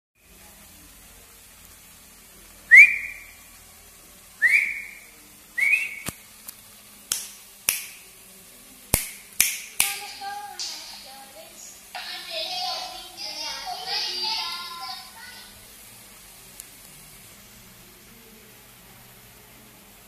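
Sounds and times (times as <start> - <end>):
whistle-like chirps: 2.7 - 3.4, 4.4 - 6.1.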